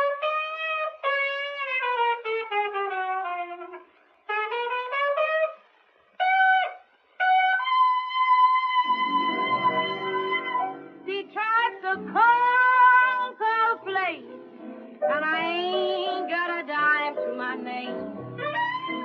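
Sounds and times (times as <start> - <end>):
solo trumpet melody: 0.0 - 11.1, 17.9 - 19.0.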